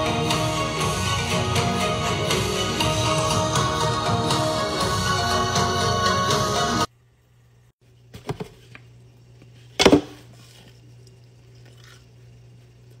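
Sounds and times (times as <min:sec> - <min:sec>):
low steady hum: 0:06.8 - 0:13.0.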